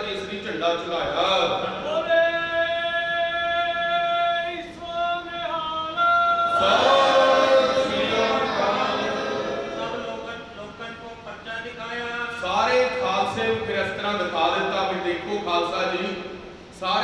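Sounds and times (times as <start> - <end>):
man chanting: 0.0 - 8.4
group chanting in unison: 6.5 - 10.3.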